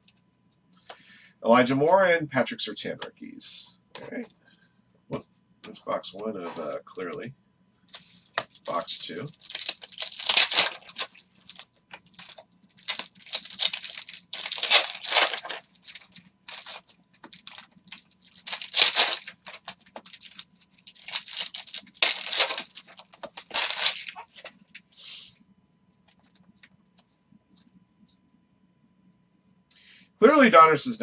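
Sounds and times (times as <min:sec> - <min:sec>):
card pack wrappers crinkling and tearing: 0:08.4 - 0:24.8.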